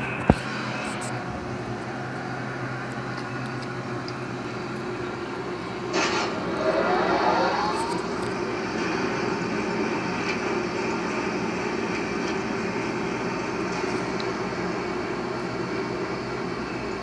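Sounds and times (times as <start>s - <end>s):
steady mechanical drone: 0.0s - 17.0s
faint rising whine: 1.1s - 9.7s.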